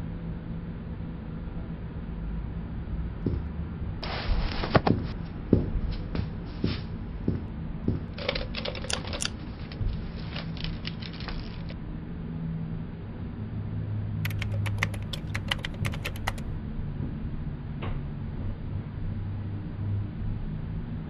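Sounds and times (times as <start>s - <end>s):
low steady hum: 0.0s - 21.0s
sharp clicks and taps: 7.3s - 11.8s, 14.3s - 16.5s.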